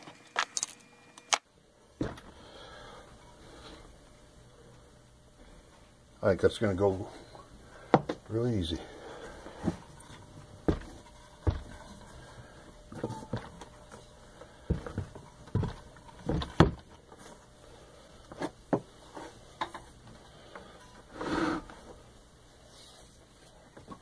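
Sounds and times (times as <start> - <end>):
scrape on workbench: 21.1 - 21.8.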